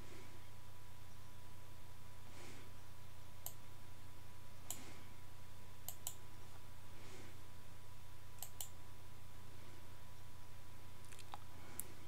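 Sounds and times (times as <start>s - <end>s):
low electrical hum: 0.0s - 12.0s
computer mouse clicking: 5.8s - 6.2s, 8.4s - 8.8s.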